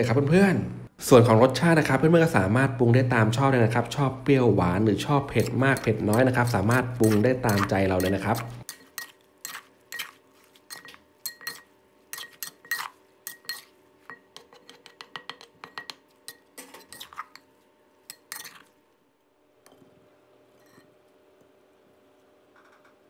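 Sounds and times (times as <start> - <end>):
metal spoon clinking against mortar: 5.3 - 10.1, 10.7 - 17.2.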